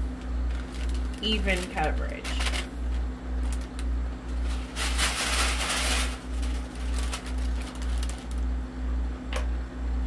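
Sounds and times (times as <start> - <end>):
glitter and paper rustling: 0.5 - 8.5.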